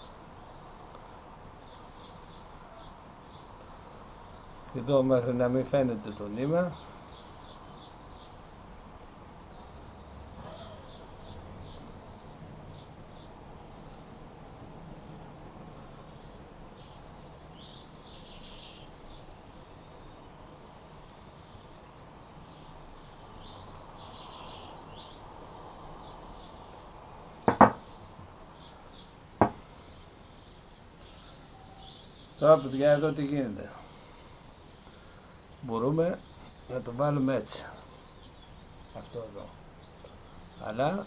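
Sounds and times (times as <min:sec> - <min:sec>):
small birds chirping: 0:00.0 - 0:41.0
sharp knocks: 0:27.4 - 0:27.8, 0:29.4 - 0:29.6.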